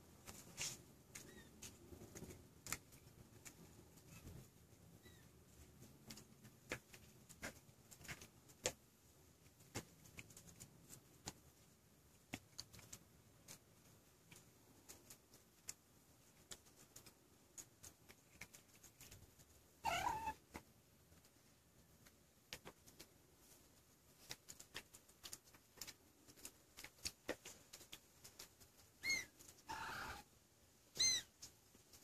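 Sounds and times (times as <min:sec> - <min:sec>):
small ticks and clicks: 0:12.3 - 0:19.6, 0:20.4 - 0:29.7
kitten mewing: 0:19.8 - 0:20.4.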